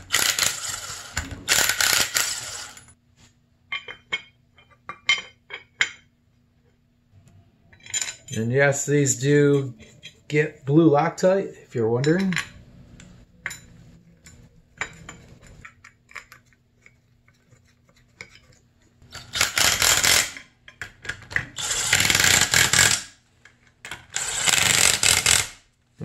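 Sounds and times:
metal parts clinking: 0:07.7 - 0:08.6.

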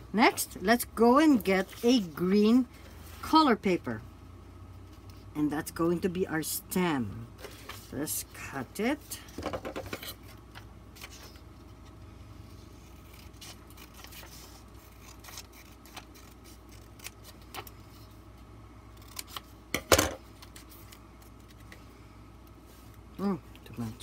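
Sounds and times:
scissors snipping paper: 0:13.0 - 0:17.7.

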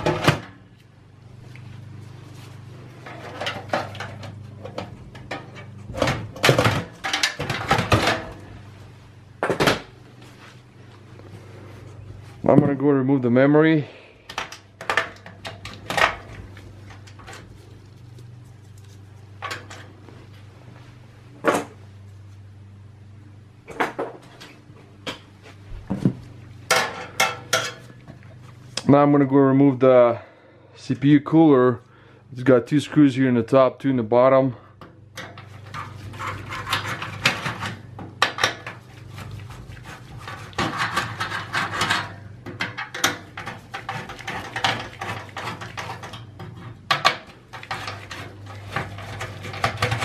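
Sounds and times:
low steady hum: 0:00.0 - 0:50.0
metal scraping on metal: 0:35.2 - 0:37.9, 0:38.6 - 0:46.8, 0:47.4 - 0:50.0.

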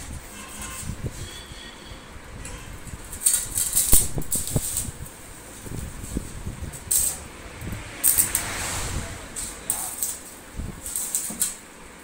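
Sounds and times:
welding arc crackling hiss: 0:02.8 - 0:12.0.

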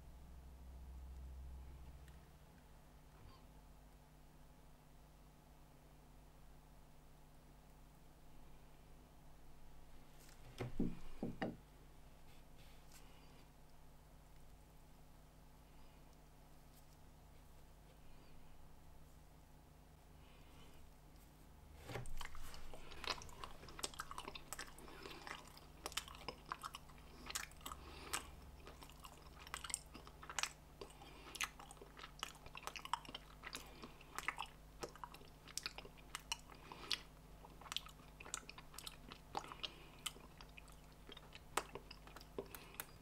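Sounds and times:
person chewing crunchy bar: 0:22.0 - 0:43.0.

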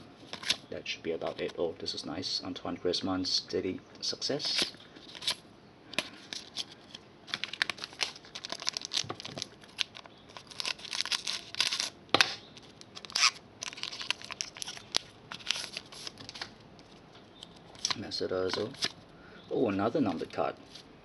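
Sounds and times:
packaging crinkling and rustling: 0:00.2 - 0:01.6, 0:04.4 - 0:05.4, 0:06.0 - 0:19.0.

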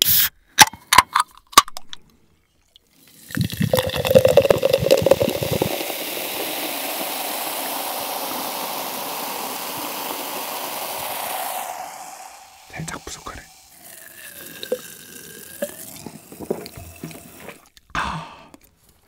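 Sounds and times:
cola pouring and fizzing in glass: 0:02.7 - 0:17.8.

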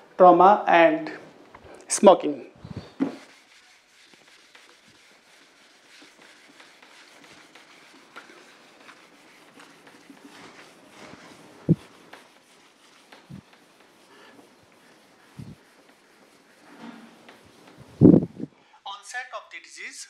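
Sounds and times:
duster rubbing on whiteboard: 0:02.6 - 0:18.5.

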